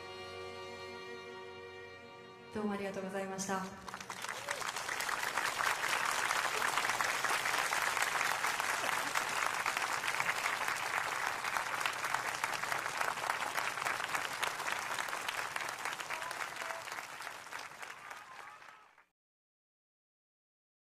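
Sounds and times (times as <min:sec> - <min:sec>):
audience applauding: 0:03.6 - 0:19.1.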